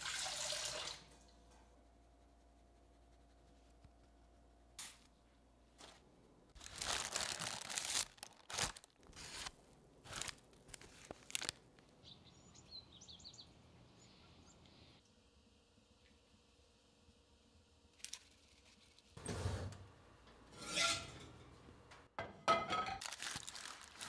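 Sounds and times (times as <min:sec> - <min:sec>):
crinkling tearing handling noises: 0:06.6 - 0:12.0, 0:18.0 - 0:19.0, 0:23.0 - 0:24.0
faint high bird chirps: 0:12.0 - 0:15.0.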